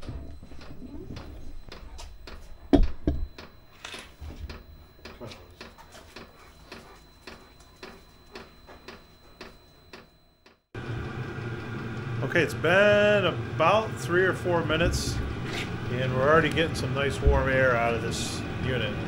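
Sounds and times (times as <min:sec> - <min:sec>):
faint steady high tone: 0:00.0 - 0:10.6.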